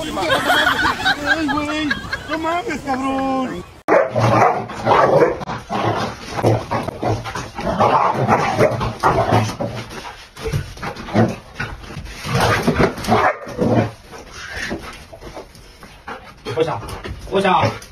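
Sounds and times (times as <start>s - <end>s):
dog barking and yipping: 3.9s - 5.5s.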